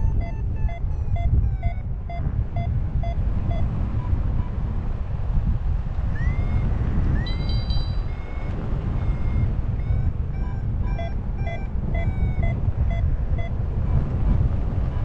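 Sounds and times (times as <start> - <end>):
variometer beeping: 0.0 - 4.6, 6.2 - 13.5
wind on microphone: 0.0 - 15.0.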